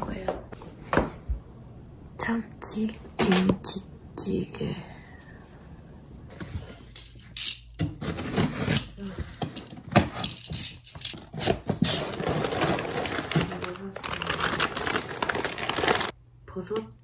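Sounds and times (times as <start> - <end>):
packing tape tearing: 11.1 - 16.1.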